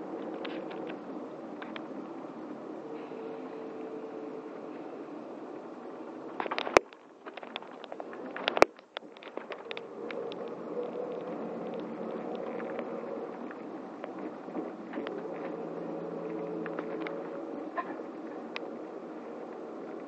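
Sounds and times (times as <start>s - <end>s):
bus engine and road drone: 0.0s - 6.8s, 9.3s - 20.0s
light clicks and rattles: 6.3s - 15.6s.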